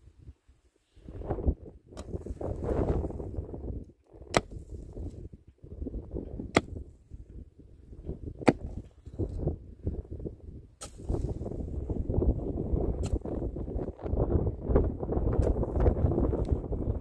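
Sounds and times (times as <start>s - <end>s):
pickaxe striking stony ground: 1.9s - 2.5s, 4.2s - 5.2s, 6.2s - 6.9s, 8.2s - 9.5s, 10.8s - 11.4s, 12.9s - 13.4s, 15.3s - 16.0s
earth and stones scraping: 1.9s - 10.1s, 10.8s - 14.3s, 15.2s - 16.8s.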